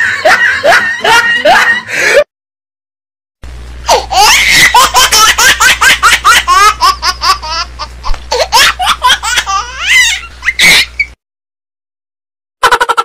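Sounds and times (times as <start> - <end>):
high-pitched laughing: 0.0 - 2.0, 3.9 - 11.1, 12.6 - 13.0
steady low hum: 3.4 - 11.2.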